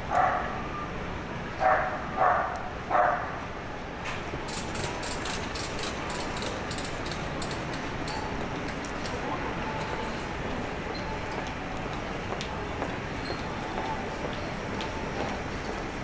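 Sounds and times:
street background noise: 0.0 - 16.0
dog barking: 0.1 - 0.6, 1.6 - 3.4.

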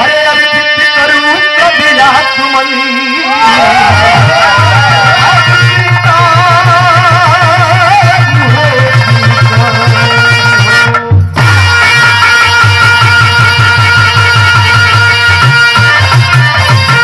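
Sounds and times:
harmonium chords: 0.0 - 17.0
fast hand drum beat: 3.4 - 10.2, 11.1 - 17.0.

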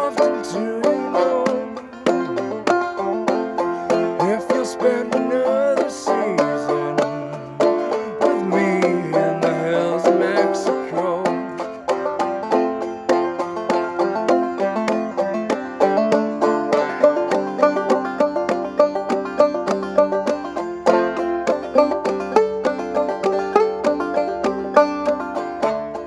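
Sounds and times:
person singing: 0.0 - 2.5, 3.9 - 11.9
banjo plucking and strumming: 0.0 - 26.0.

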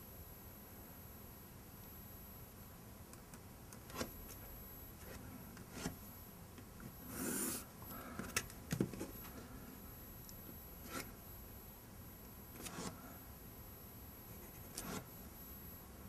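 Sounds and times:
pencil scratching on paper: 7.1 - 7.7, 12.6 - 13.0, 14.3 - 15.1.

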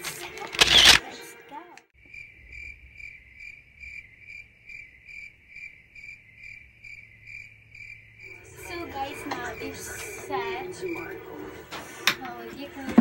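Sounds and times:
cricket-like chirping: 2.0 - 11.2.

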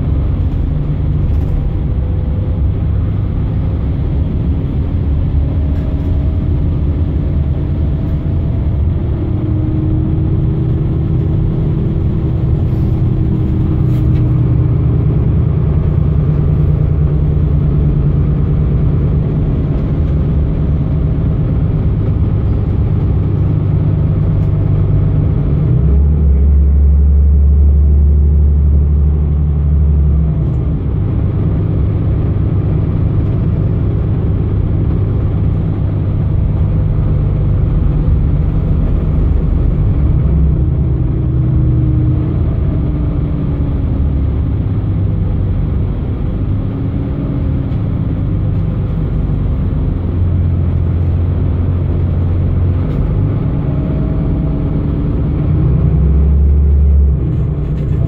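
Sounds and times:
bus diesel engine rumble: 0.0 - 58.0.

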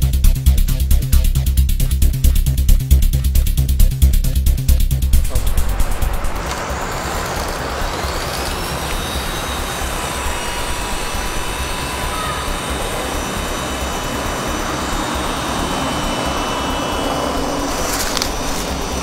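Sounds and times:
steady rushing noise: 4.7 - 19.0
helicopter electric motors whining: 5.0 - 19.0.

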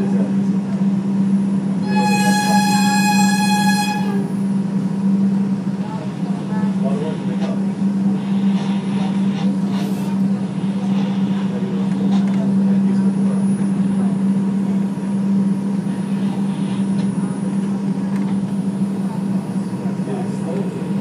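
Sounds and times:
subway wheel-on-rail noise: 0.0 - 21.0.

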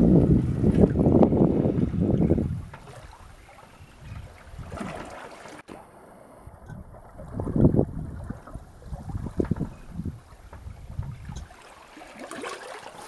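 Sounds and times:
wind buffeting microphone: 0.0 - 5.2, 6.3 - 11.6
water splashing around boat: 0.0 - 13.0.

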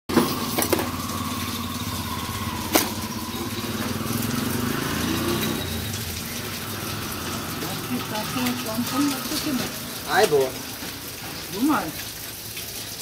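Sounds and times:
small engine idling: 0.1 - 9.6.

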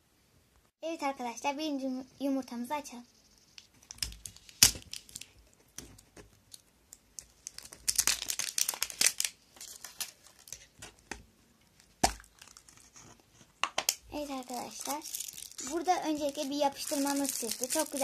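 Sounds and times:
wrapper crinkling and tearing: 3.8 - 5.4, 6.4 - 10.8, 11.8 - 13.0, 14.2 - 18.0.

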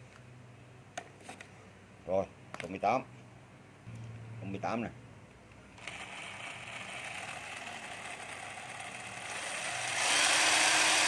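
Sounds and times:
cordless drill motor running: 5.8 - 11.0.

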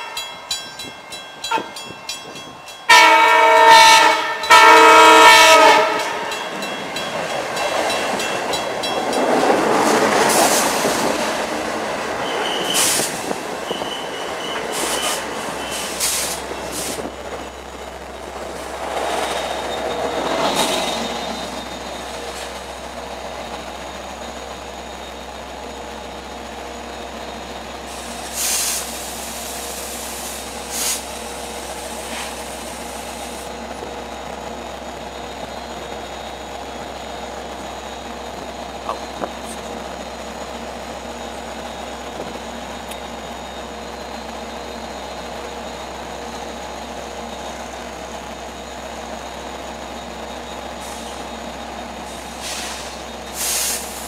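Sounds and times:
diesel locomotive engine hum: 0.0 - 54.0
short squeal: 12.2 - 16.8
air hiss bursts: 12.7 - 13.4, 14.7 - 17.0, 27.9 - 33.5, 52.2 - 54.0.

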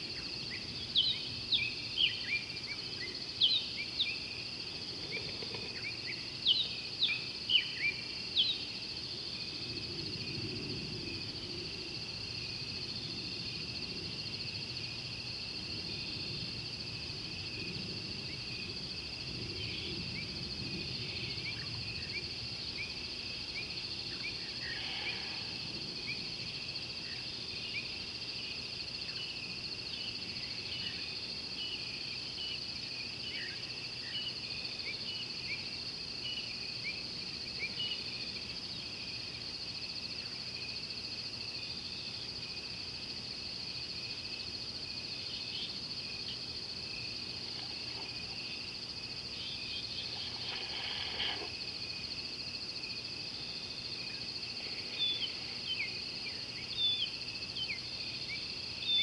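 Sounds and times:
insects chorus: 0.0 - 59.0
short insect chirps: 45.4 - 52.4, 53.3 - 59.0.

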